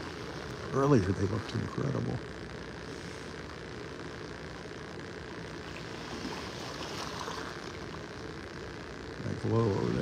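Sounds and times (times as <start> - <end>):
wind and water rushing: 5.6 - 8.0.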